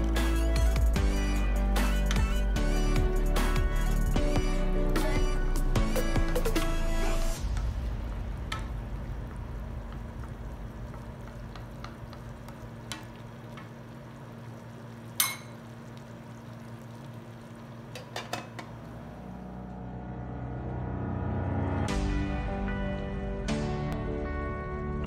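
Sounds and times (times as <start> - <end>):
stew sizzling in a frying pan: 7.6 - 19.4.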